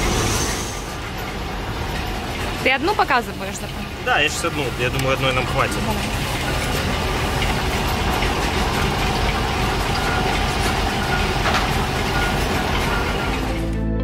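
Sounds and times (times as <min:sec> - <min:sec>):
crane engine running: 0:00.0 - 0:14.0
background music: 0:11.3 - 0:14.0.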